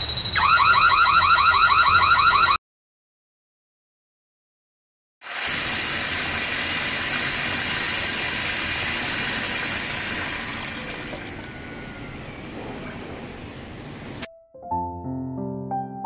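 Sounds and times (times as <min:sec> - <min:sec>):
tap water gushing into sink: 0:05.2 - 0:11.4.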